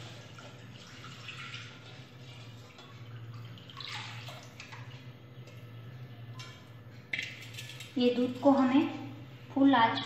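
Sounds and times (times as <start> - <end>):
milk pouring and splashing: 0.0 - 5.8.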